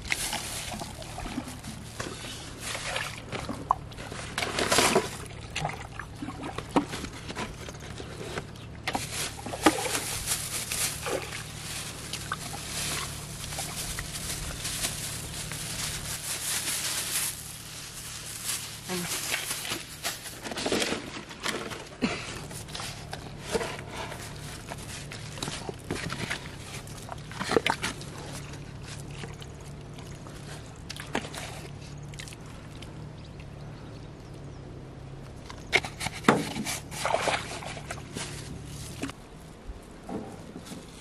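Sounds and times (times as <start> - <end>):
steady low hum: 0.0 - 35.7
hands handling plastic jars: 6.5 - 29.5.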